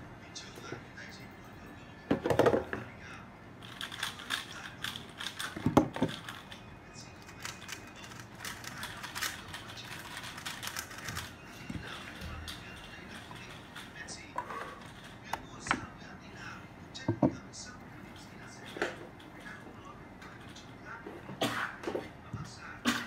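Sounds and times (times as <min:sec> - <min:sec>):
plastic cubes clicking and rattling: 0:03.6 - 0:06.6, 0:07.3 - 0:13.9.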